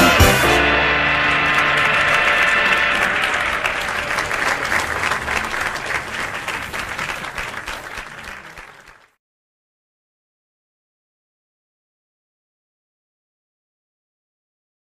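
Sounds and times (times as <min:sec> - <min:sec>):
held music notes: 0:00.0 - 0:06.9
crowd applauding: 0:00.0 - 0:09.2.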